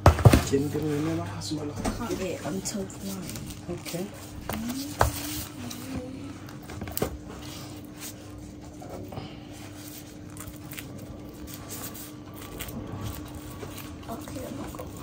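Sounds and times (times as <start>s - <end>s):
steady low hum: 0.0s - 15.0s
plastic glove rustling: 2.0s - 5.9s, 9.5s - 15.0s.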